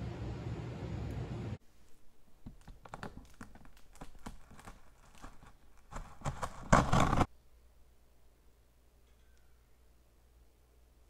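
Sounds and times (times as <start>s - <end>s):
cardboard crackling and scraping: 2.4s - 7.3s
packing tape ripping: 2.4s - 7.3s.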